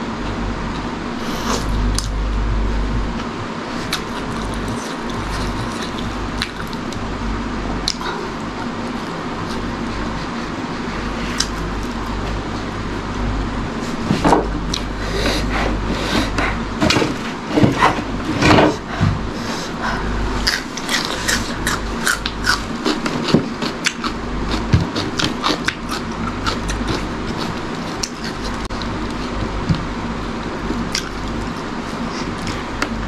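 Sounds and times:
low hum: 0.0s - 33.0s
person chewing: 3.7s - 7.1s, 7.8s - 12.7s, 19.6s - 29.5s, 30.6s - 33.0s.

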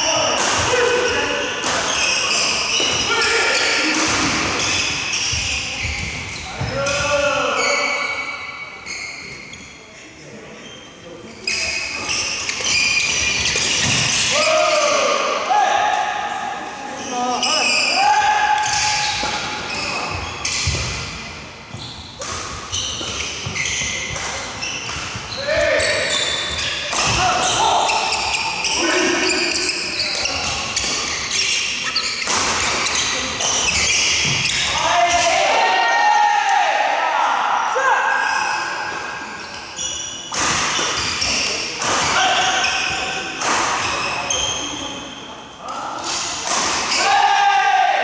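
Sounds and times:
shoes squeaking on floor: 1.8s - 3.8s, 4.6s - 14.4s, 16.9s - 35.4s, 39.2s - 43.2s, 43.8s - 45.8s
racket hitting shuttlecock: 22.2s - 25.2s, 26.5s - 27.6s, 32.2s - 34.5s.

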